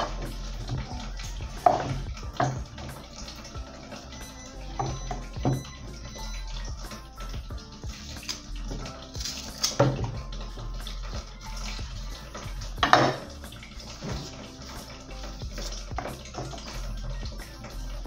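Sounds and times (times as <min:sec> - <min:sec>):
background music: 0:00.0 - 0:18.0
knife peeling plantain: 0:07.9 - 0:10.2.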